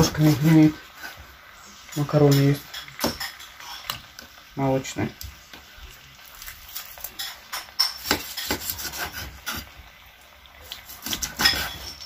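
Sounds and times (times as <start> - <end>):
knife scraping: 6.7 - 9.7, 10.6 - 12.0.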